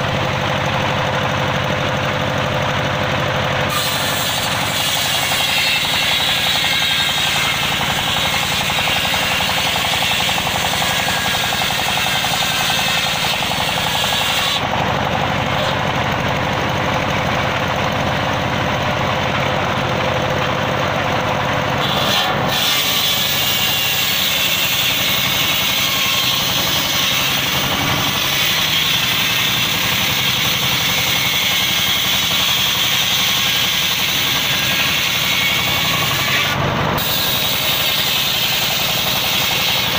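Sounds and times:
circular saw ripping a log: 0:03.6 - 0:16.0, 0:21.7 - 0:39.9.

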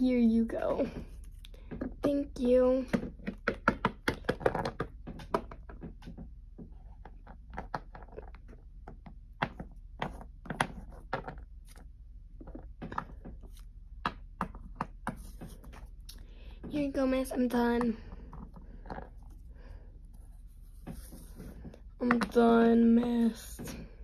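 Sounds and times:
plastic figurines tapping on wood: 0:02.8 - 0:11.4.

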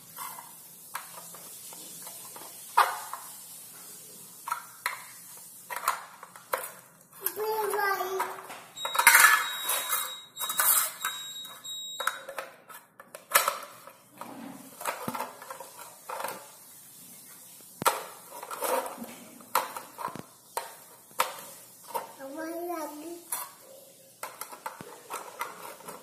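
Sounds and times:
high-pitched beep: 0:08.8 - 0:12.1
plastic toy blocks clacking: 0:24.2 - 0:26.0.

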